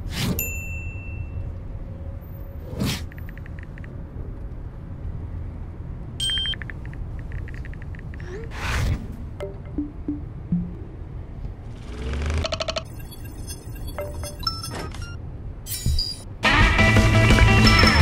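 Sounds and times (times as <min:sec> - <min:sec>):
phone keyboard typing clicks: 0:06.2 - 0:08.2.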